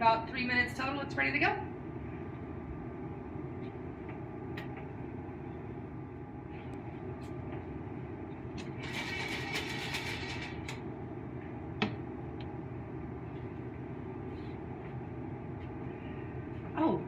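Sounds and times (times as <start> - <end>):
steady background noise: 0.0 - 17.0
kernels rattling in metal pot: 8.8 - 10.7.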